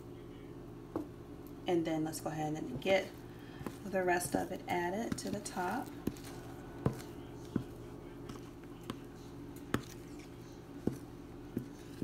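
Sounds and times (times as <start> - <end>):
steady low hum: 0.0 - 12.0
wooden spoon scraping bowl: 3.0 - 12.0.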